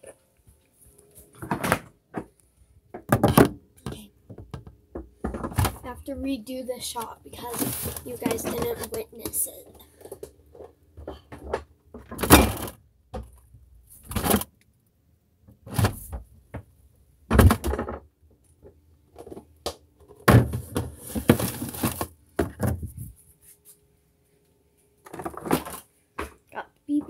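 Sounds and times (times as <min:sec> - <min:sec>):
bottles jostling: 0:06.8 - 0:09.7, 0:20.4 - 0:22.9.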